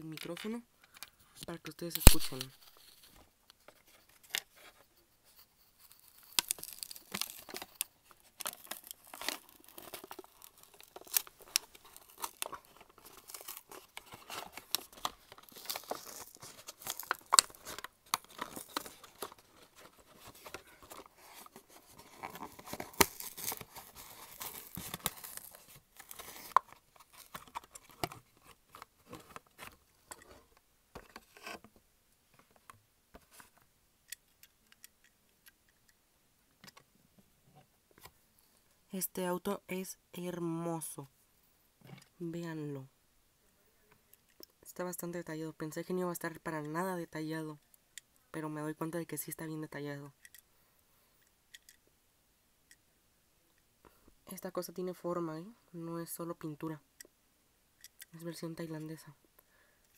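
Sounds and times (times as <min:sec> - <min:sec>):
card backing ripping: 0:02.0 - 0:02.5, 0:08.4 - 0:28.0
plastic blister crinkling: 0:05.8 - 0:30.4.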